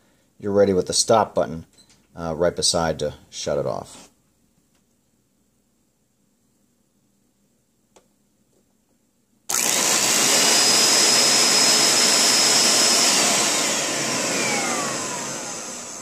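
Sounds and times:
spot cleaner motor whirring: 9.5s - 16.0s.

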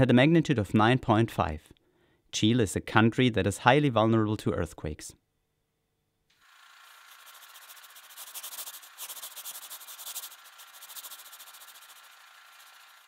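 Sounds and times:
stylus scratching across paper: 6.6s - 13.0s.

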